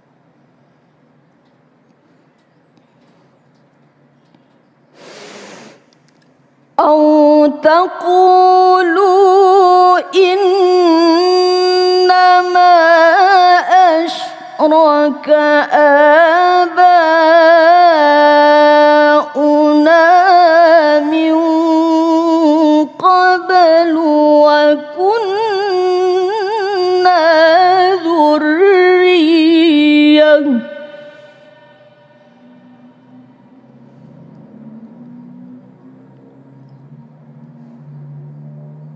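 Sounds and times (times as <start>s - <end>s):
woman reciting melodically: 6.8s - 33.0s.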